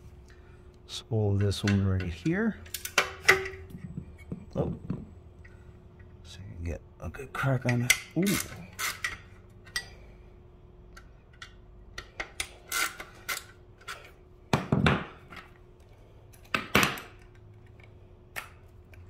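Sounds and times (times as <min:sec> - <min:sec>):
screwdriver clicking and scraping: 0:11.4 - 0:14.1.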